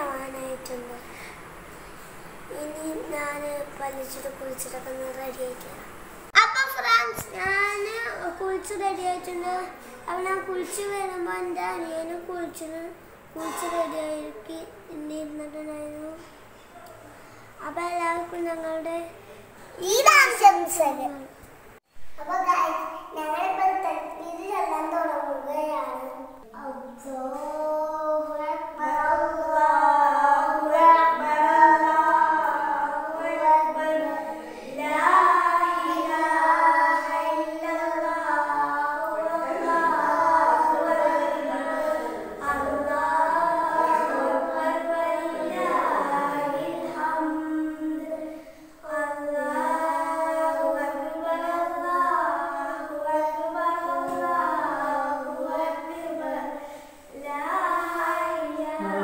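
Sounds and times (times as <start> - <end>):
child singing: 7.1 - 16.3, 22.2 - 59.0.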